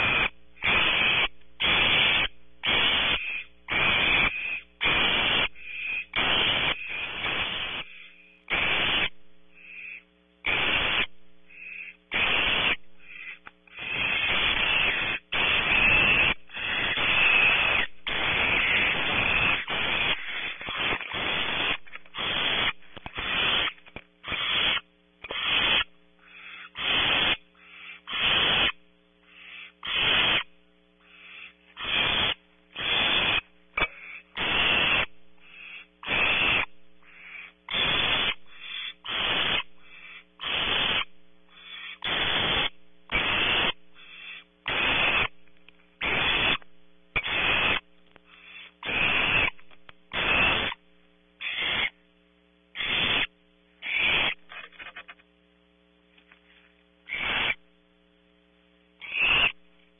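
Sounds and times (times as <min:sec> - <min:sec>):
steady electrical hum: 0:00.0 - 0:59.9
owlet hissing: 0:11.7 - 0:27.3.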